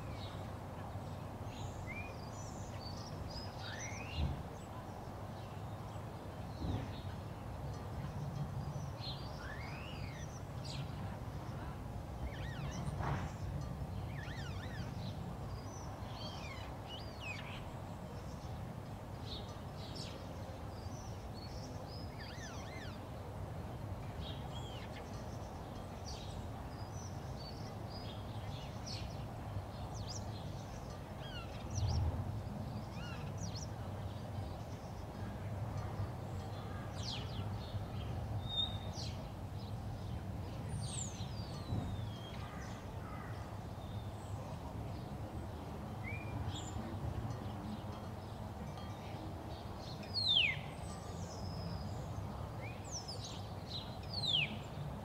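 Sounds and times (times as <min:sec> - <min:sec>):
small birds chirping: 0:00.0 - 0:18.6, 0:19.2 - 0:55.0.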